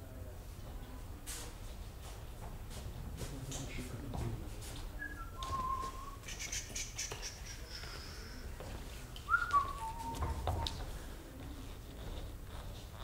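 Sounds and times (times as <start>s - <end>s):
person whistling: 5.0s - 7.1s, 9.3s - 10.4s.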